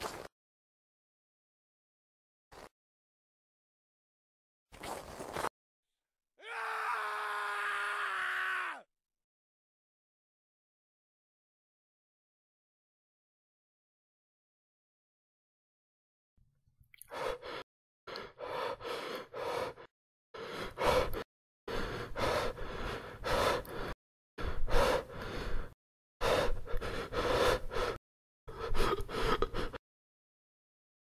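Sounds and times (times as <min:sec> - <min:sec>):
heavy gasping breaths: 0:17.1 - 0:29.8.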